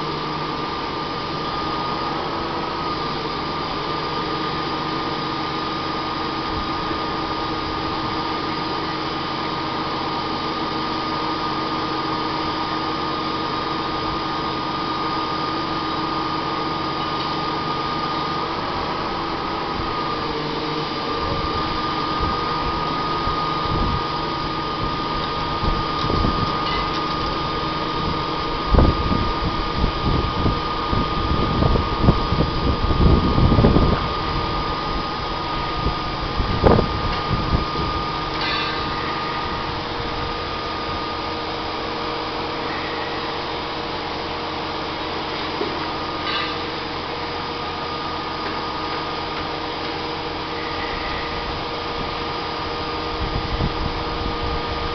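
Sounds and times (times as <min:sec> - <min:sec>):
truck engine and hydraulics whine: 0:00.0 - 0:54.9
wind rumble on microphone: 0:21.2 - 0:38.2, 0:52.9 - 0:54.9.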